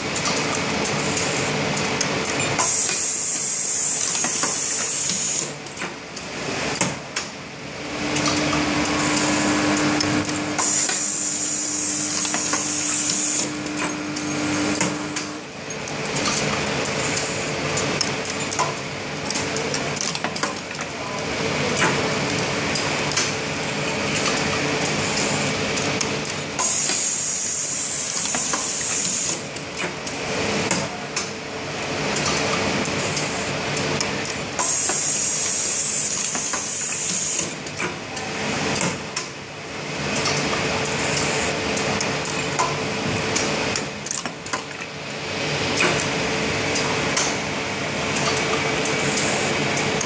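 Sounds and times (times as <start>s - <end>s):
steady machine hum: 5.0s - 20.0s
parts clattering along feed track: 8.0s - 31.4s.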